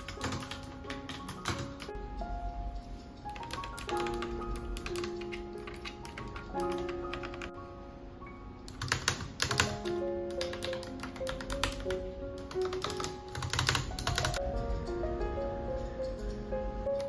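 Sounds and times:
clicky keyboard typing: 0.0s - 1.9s, 3.2s - 7.5s, 8.7s - 14.4s
soft piano music: 0.0s - 17.0s.

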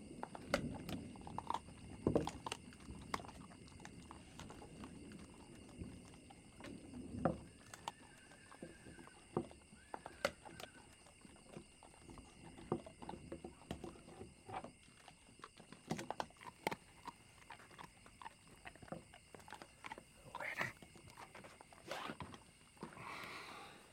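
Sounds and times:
dogs chewing on bones: 0.0s - 23.0s.

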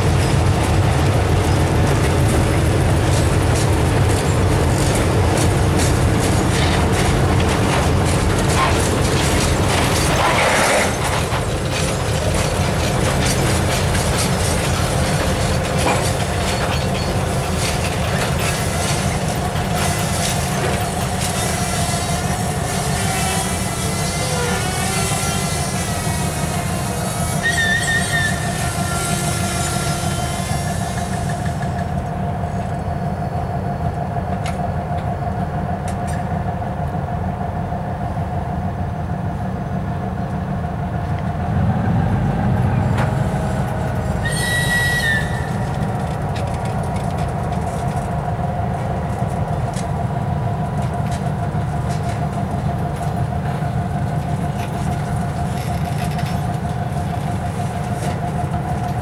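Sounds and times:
train wagons rumbling on rails: 0.0s - 59.0s
wheel squeals: 8.5s - 31.5s, 42.9s - 46.6s
constant whine: 31.6s - 59.0s.

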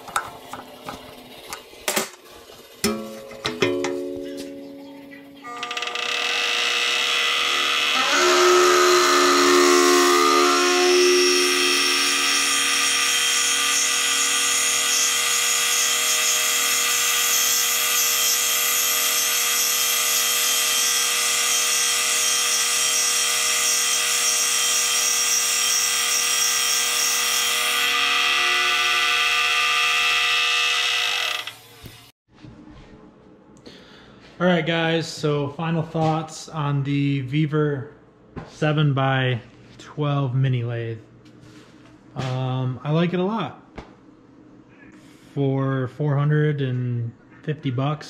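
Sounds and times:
lathe motor and gear whine: 5.5s - 31.8s
drill cutting hiss: 6.1s - 32.1s.

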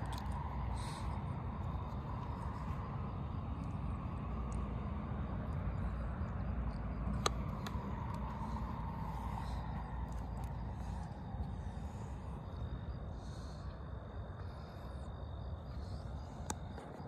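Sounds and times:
low rumble and hiss: 0.0s - 17.0s.

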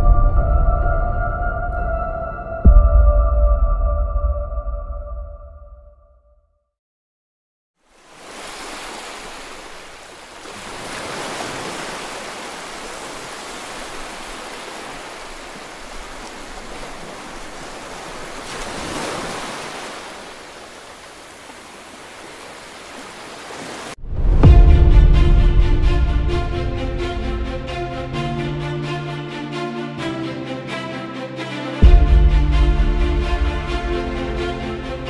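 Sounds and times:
loud music: 24.4s - 35.0s.

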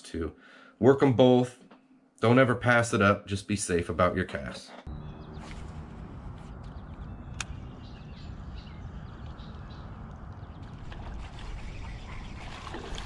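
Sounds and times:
wind on microphone: 5.2s - 13.0s
water lapping at hull: 9.4s - 13.0s.

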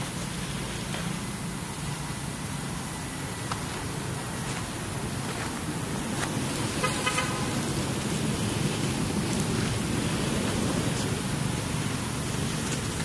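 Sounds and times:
low outdoor rumble: 0.0s - 13.0s
rapidly pulsed horn toot: 6.8s - 7.6s.

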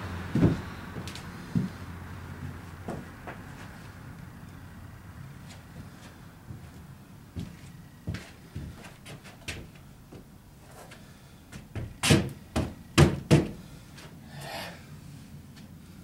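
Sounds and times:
light footstep taps: 0.4s - 1.8s, 5.5s - 12.0s
heavy hollow thumps on plywood: 11.8s - 13.6s.

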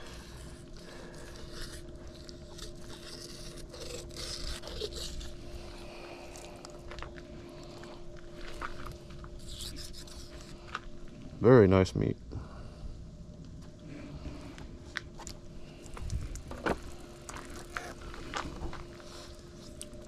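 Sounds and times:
faint steady hum: 0.0s - 20.0s
knife scraping and slicing meat: 1.3s - 5.4s.

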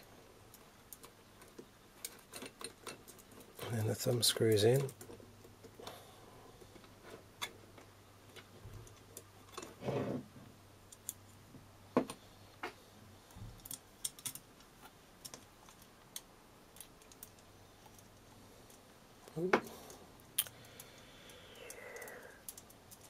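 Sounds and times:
small metal parts clicking: 0.5s - 5.2s, 13.6s - 14.5s, 15.2s - 18.8s, 19.9s - 23.0s.

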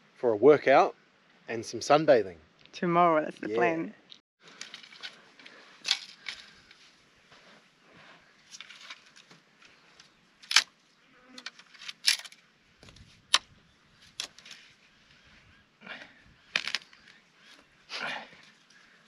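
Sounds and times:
twigs rustling: 4.4s - 19.0s
dry sticks cracking: 8.5s - 10.8s, 14.1s - 14.6s.

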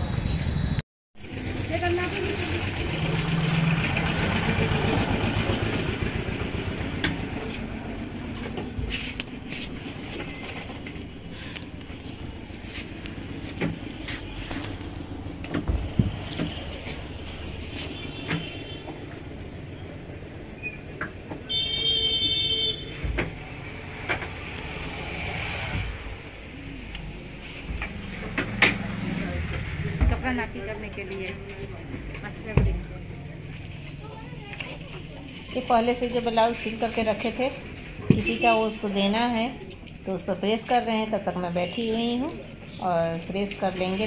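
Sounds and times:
road traffic rumble: 0.0s - 44.0s
vehicle horn: 17.8s - 18.9s, 21.5s - 23.0s.

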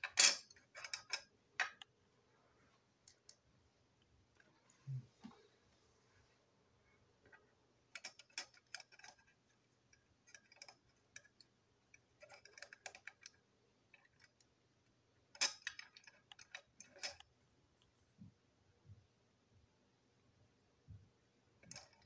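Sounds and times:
plastic and metal toy parts clicking: 0.0s - 1.9s, 7.9s - 9.4s, 10.2s - 11.5s, 12.2s - 14.5s, 15.3s - 17.3s, 21.6s - 22.0s.

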